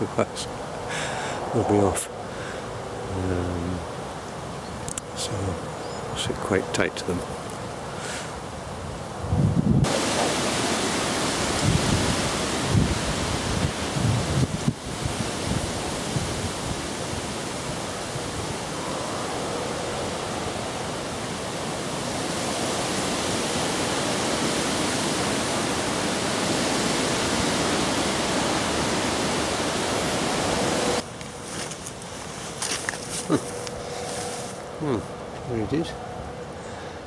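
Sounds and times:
wind through reeds and trees: 0.0 - 37.0
river rushing: 9.8 - 34.8.

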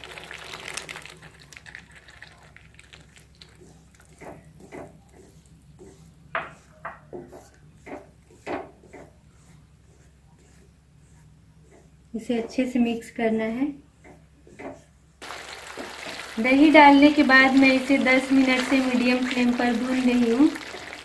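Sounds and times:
wooden spatula scraping pan: 3.6 - 12.8, 16.4 - 21.0
yogurt sizzling in hot pan: 15.2 - 21.0.

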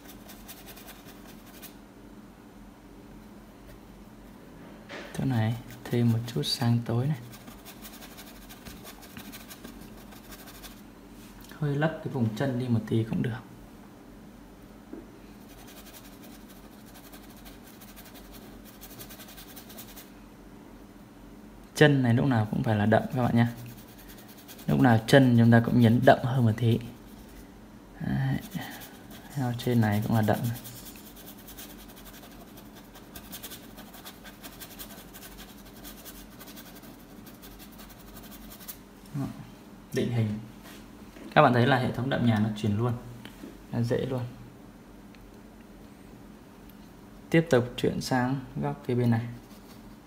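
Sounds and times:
paintbrush scratching on canvas: 0.0 - 1.8, 5.7 - 10.8, 15.4 - 20.1, 22.9 - 25.3, 28.3 - 38.8.

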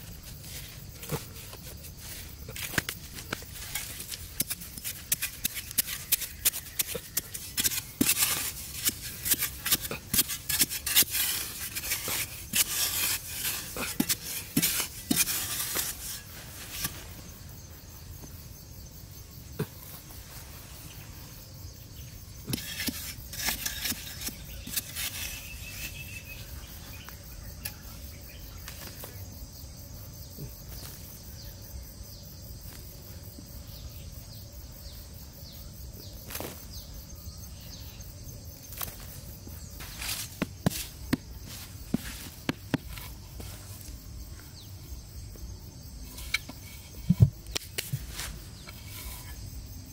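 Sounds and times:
stick scraping in sandy soil: 0.0 - 18.3, 22.0 - 29.3, 36.2 - 37.8, 38.5 - 49.9
insects buzzing: 0.0 - 49.9
earth scooped out by hand: 0.1 - 17.4, 22.4 - 26.4.

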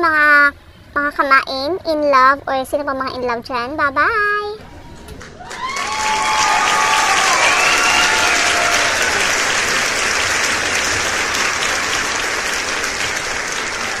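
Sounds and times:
people cheering: 4.6 - 14.0
crowd applauding: 4.9 - 14.0.

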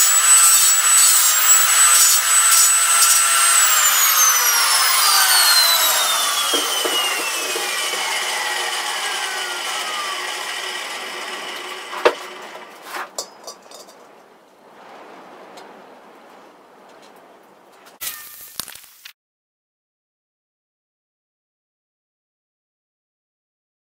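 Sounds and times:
angle grinder winding down: 0.0 - 12.8.

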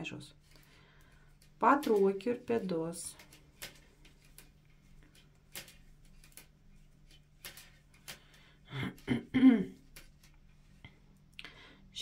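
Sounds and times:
metal knitting needles clicking: 1.6 - 8.3.

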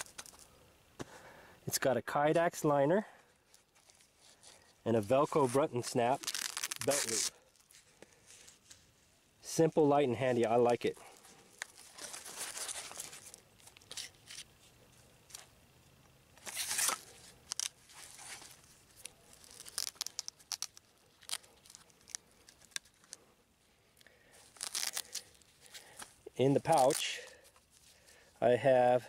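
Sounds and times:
sheath rustling and scraping: 3.1 - 15.6, 16.4 - 23.3, 24.2 - 28.5
loud rip of pouch: 3.5 - 8.8, 11.0 - 14.5, 16.4 - 23.2, 24.4 - 27.9.

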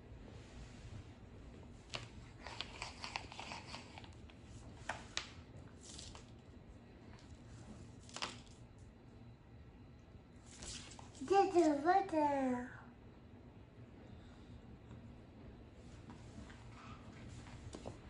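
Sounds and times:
paper rustling: 4.8 - 6.3, 10.4 - 11.8.

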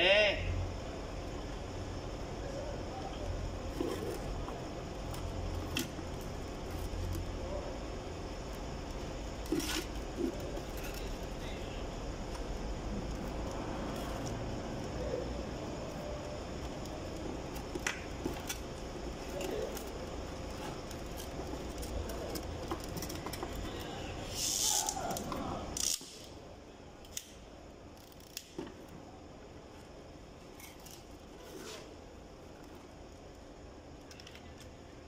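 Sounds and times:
low background hum: 0.0 - 35.0
short hiss: 24.2 - 25.0.

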